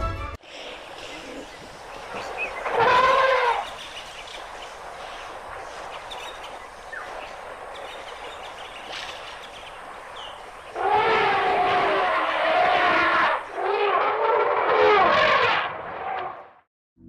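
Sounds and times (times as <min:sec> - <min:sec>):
steady hiss: 0:00.4 - 0:10.8.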